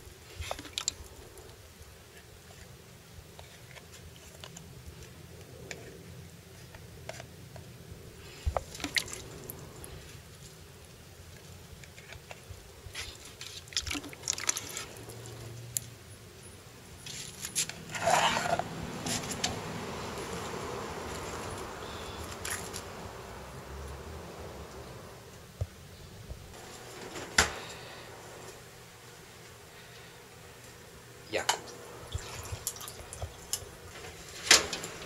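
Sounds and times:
wet fish squelching in bowl: 8.6s - 10.0s, 13.7s - 15.5s.

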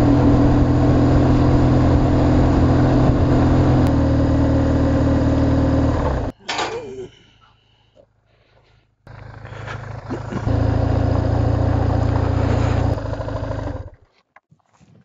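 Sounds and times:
motorcycle engine running: 0.0s - 6.3s, 9.1s - 14.0s.

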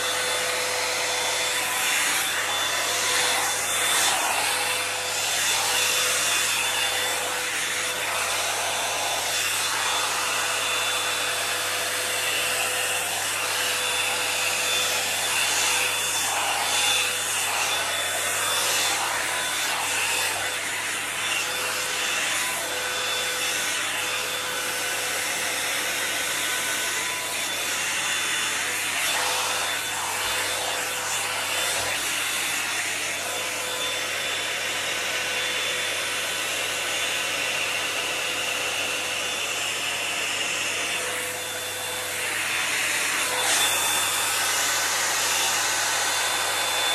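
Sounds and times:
hot-air brush blowing: 0.0s - 46.9s.

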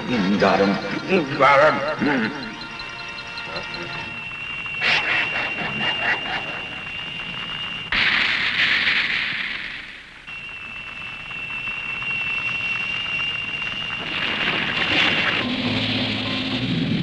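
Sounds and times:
ray-gun high whine: 0.0s - 17.0s
loud hissing blast: 7.9s - 10.2s.

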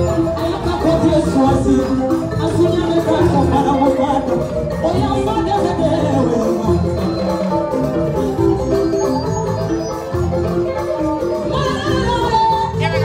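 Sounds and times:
person singing: 0.0s - 7.8s
live band music: 0.0s - 13.0s.

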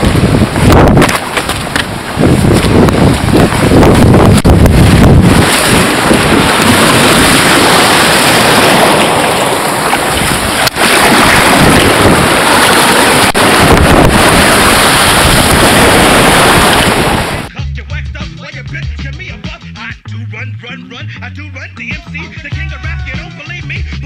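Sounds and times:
surf breaking on rocks: 0.0s - 17.5s
wind buffeting microphone: 0.0s - 17.5s.

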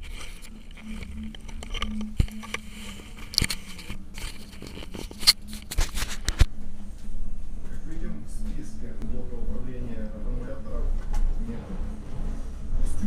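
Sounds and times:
phone handling rustles and scrapes: 0.0s - 6.5s.

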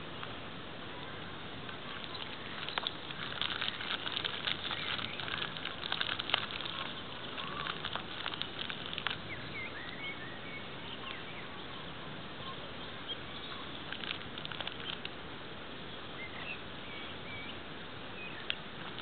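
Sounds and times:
steady outdoor hiss: 0.0s - 19.0s
light ticks and patter: 1.0s - 10.0s, 12.4s - 15.2s, 18.4s - 19.0s
small birds chirping: 1.0s - 15.2s, 15.8s - 19.0s.

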